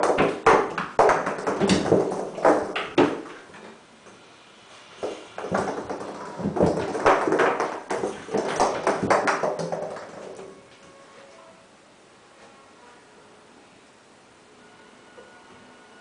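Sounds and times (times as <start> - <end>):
balls bouncing in bathtub: 0.0 - 3.8, 5.0 - 10.6.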